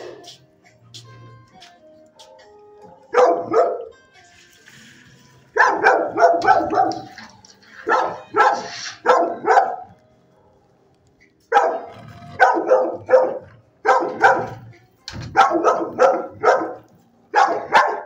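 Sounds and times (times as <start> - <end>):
dogs barking: 2.8 - 4.0, 5.5 - 10.8, 11.4 - 18.0.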